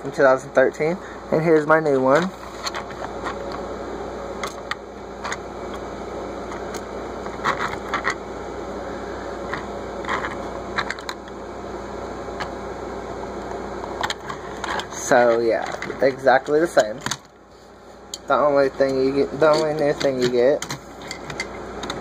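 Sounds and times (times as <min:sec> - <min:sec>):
background hiss and hum: 0:00.0 - 0:22.0.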